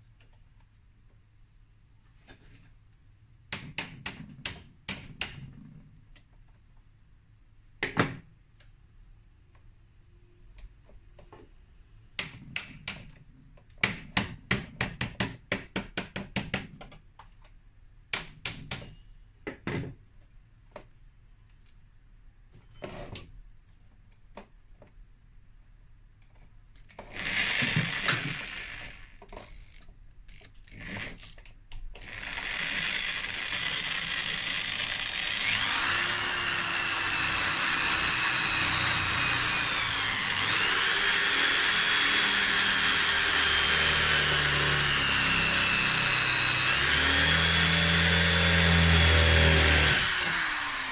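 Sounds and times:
electric power tool running: 27.2s - 29.1s, 32.1s - 50.9s.

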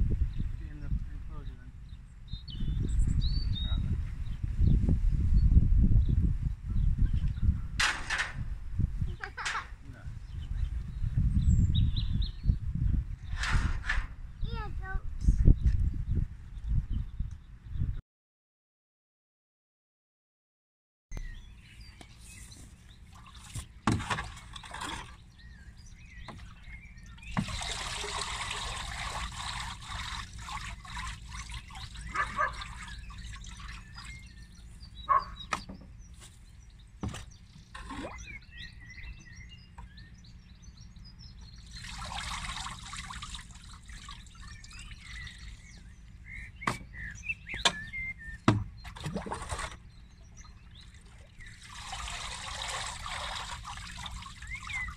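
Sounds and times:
faint birds chirping: 0.2s - 7.8s, 14.3s - 18.0s, 21.2s - 54.9s
liquid sloshing and trickling: 22.9s - 25.4s, 26.3s - 34.6s, 37.6s - 38.4s, 41.6s - 45.8s, 48.8s - 54.9s
sharp knocks: 37.0s - 37.3s, 46.6s - 47.8s, 48.4s - 48.8s.

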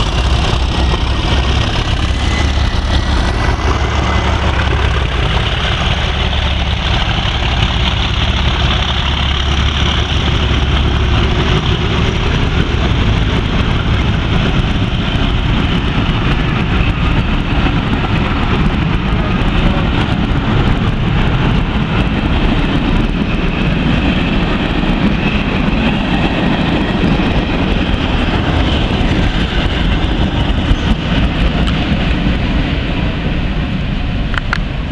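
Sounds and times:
diesel locomotive engine drone: 0.0s - 34.9s
train wheels rumbling on rails: 0.0s - 34.9s.

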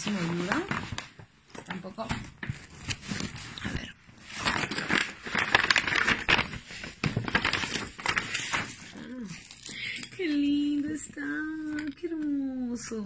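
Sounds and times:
paper and plastic crinkling: 0.0s - 12.6s.

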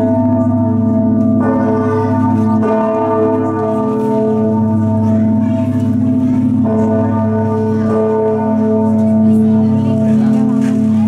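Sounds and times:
church bells pealing: 0.0s - 11.0s.

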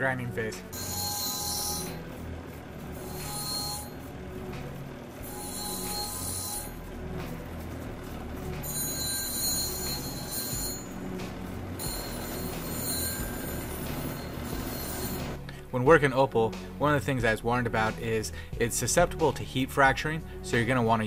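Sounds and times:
low motor hum: 0.0s - 20.5s
stone grinding whine: 0.5s - 15.5s.

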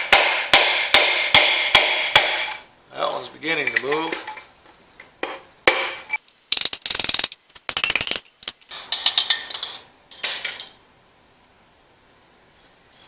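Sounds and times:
hammer striking metal rod: 0.0s - 2.6s
tools clanking on metal: 3.6s - 6.1s, 7.8s - 10.8s
metallic rattling and clinking: 6.5s - 10.7s.

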